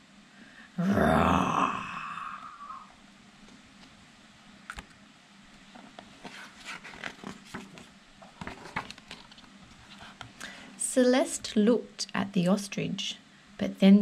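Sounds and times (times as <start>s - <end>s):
paper rustling and scraping: 5.7s - 10.2s.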